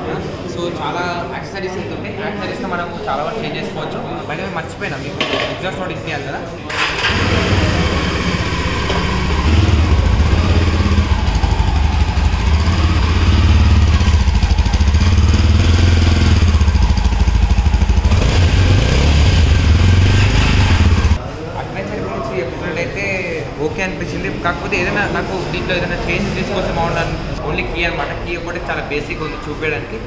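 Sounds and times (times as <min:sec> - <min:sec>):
motorcycle engine idling: 0:06.9 - 0:21.2.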